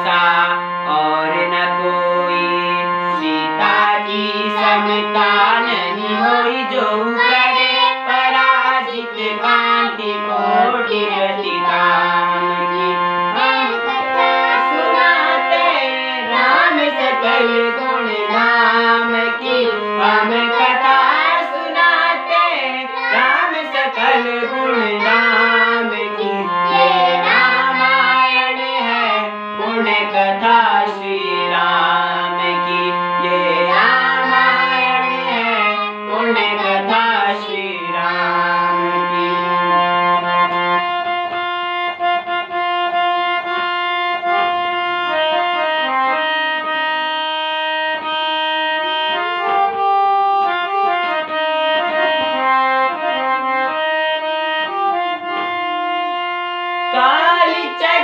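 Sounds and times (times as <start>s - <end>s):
boys singing together: 0.0s - 40.7s, 56.9s - 58.0s
harmonium chords: 0.0s - 58.0s.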